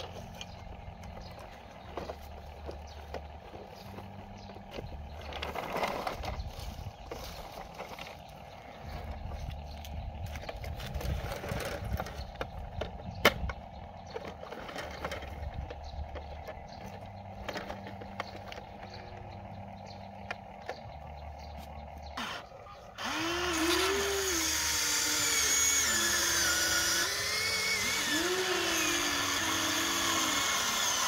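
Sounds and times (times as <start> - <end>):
steady background hum: 0.0 - 31.0
plastic toy clicks and scraping: 1.9 - 8.3, 10.4 - 19.2.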